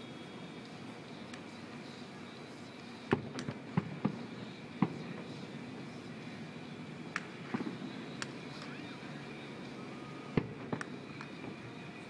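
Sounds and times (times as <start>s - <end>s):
city background hum: 0.0s - 12.0s
distant fireworks booms: 3.1s - 5.5s.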